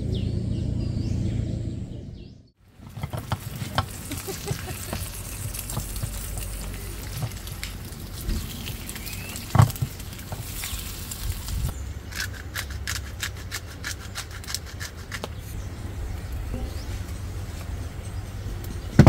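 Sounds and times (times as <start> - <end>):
eggs sizzling in a pan: 2.7 - 11.7
spatula working in a pan: 2.8 - 11.7.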